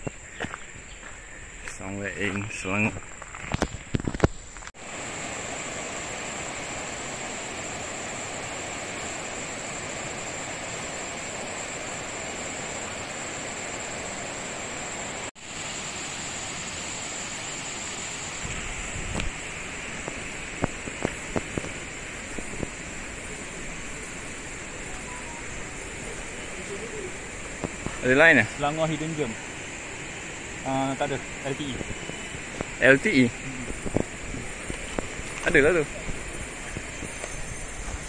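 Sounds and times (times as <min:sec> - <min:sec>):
footsteps on dirt trail: 0:00.0 - 0:04.7, 0:26.1 - 0:28.1, 0:33.7 - 0:38.0
thin high whine: 0:00.0 - 0:38.0.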